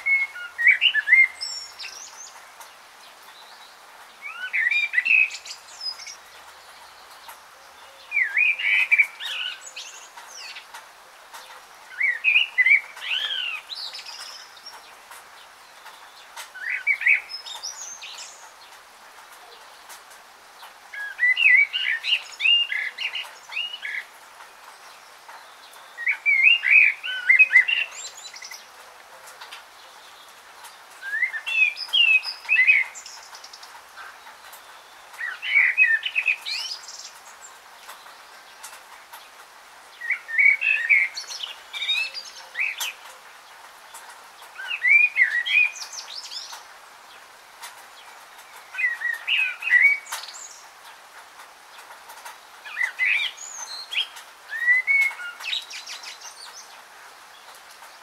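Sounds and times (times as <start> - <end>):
songbird singing warbled phrase: 0.0 - 2.4, 3.2 - 10.7, 11.4 - 18.6, 20.9 - 24.2, 24.8 - 30.4, 31.0 - 38.8, 40.0 - 43.2, 44.6 - 46.6, 48.4 - 50.6, 52.6 - 56.7.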